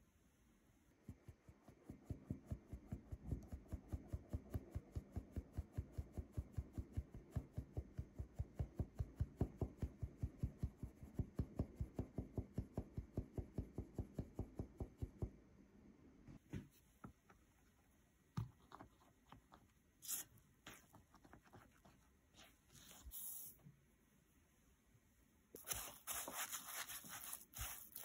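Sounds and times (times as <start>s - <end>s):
flour sifting through sieve: 20.0s - 23.6s, 25.6s - 28.0s.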